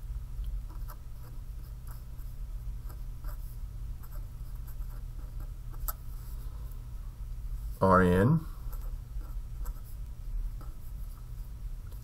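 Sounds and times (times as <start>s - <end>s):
steady low hum: 0.0s - 12.0s
marker pen scratching on paper: 0.7s - 6.4s, 8.6s - 12.0s.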